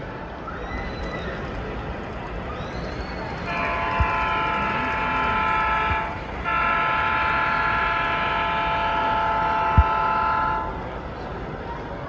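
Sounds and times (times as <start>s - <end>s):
multi-chime diesel horn blasts: 3.5s - 10.8s.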